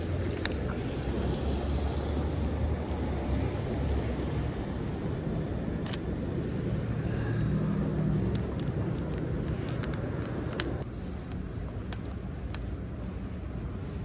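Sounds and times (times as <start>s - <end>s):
vehicle passing: 0.0s - 10.9s
traffic on wet pavement: 0.0s - 14.0s
sharp clicks: 5.2s - 6.5s.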